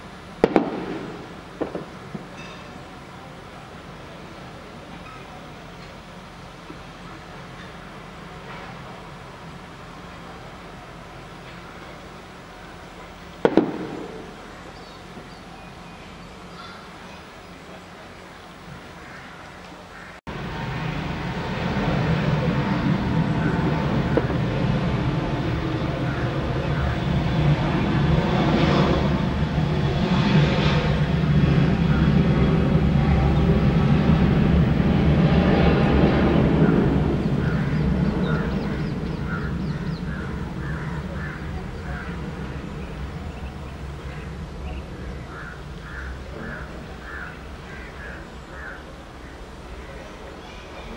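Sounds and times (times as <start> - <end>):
jet engines rumbling at takeoff: 0.0 - 50.9
bird calling: 11.7 - 20.2, 22.2 - 29.1, 36.4 - 50.9.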